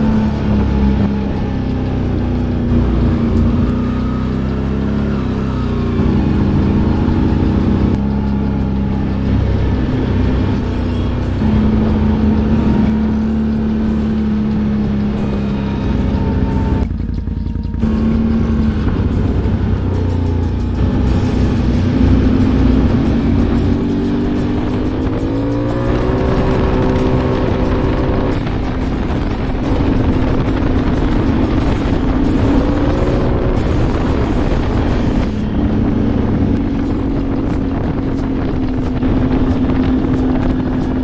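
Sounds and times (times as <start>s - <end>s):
atv engine running: 0.0s - 41.0s.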